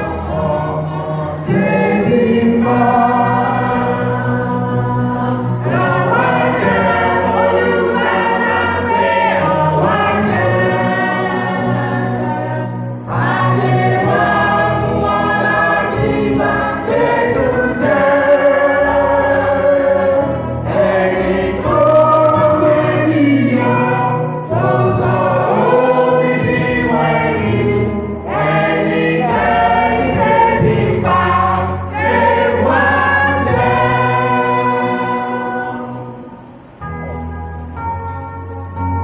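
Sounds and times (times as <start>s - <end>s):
choir singing a hymn: 0.0s - 38.0s.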